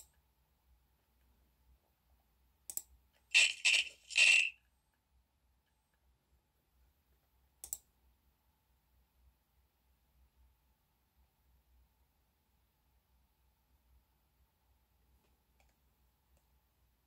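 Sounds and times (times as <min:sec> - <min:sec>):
computer sound effect bursts: 0:03.4 - 0:04.5.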